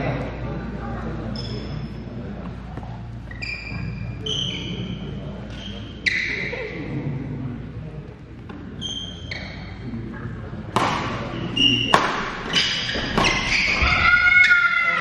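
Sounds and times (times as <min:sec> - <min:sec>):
murmur of crowd: 0:00.0 - 0:15.0
sneaker soles squeaking on court: 0:01.3 - 0:02.1, 0:02.7 - 0:06.5, 0:08.5 - 0:14.6.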